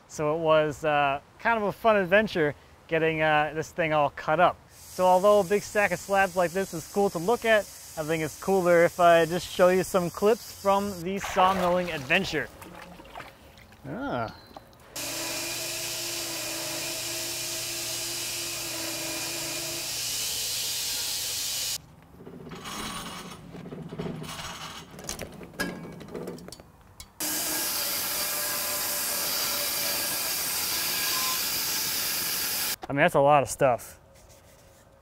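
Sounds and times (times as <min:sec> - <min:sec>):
bandsaw mill sawing log: 0:15.0 - 0:21.8, 0:27.2 - 0:32.8
knocks and scraping: 0:21.8 - 0:27.2.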